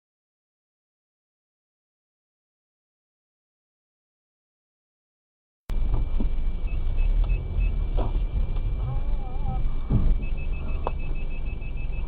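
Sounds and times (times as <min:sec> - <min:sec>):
car rumble inside cabin: 0:05.7 - 0:12.0
short high beeps: 0:10.1 - 0:12.0.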